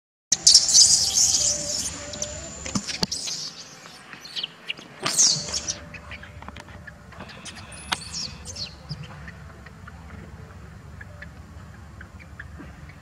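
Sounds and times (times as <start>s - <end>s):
baby monkey screaming: 0.4s - 3.6s, 5.0s - 6.3s.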